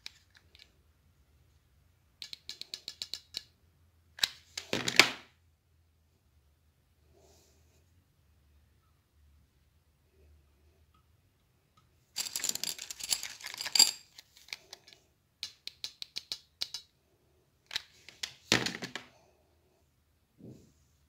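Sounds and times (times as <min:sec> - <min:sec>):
glass beads clinking in a bowl: 0:12.2 - 0:14.2.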